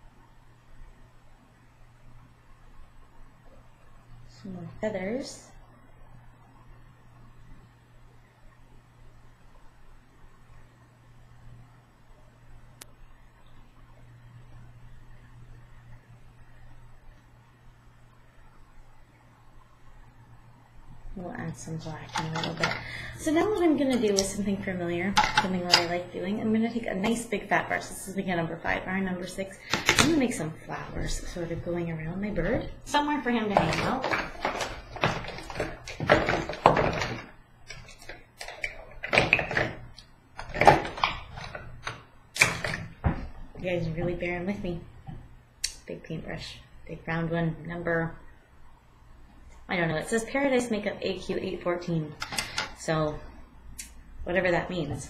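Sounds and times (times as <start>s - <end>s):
steady low hum: 0.0s - 55.0s
supplies being rummaged through: 21.8s - 24.3s, 25.2s - 25.9s, 33.4s - 43.3s.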